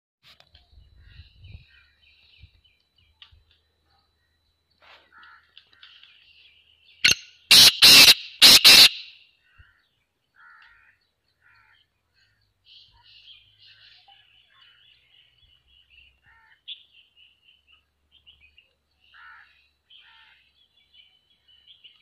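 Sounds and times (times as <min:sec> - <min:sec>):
small birds chirping: 0:00.5 - 0:22.0
francolin harsh call: 0:07.0 - 0:09.8.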